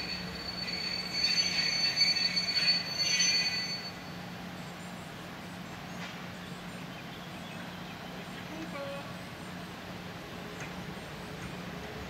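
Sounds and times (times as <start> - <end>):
train wheels squealing: 0.0 - 4.7.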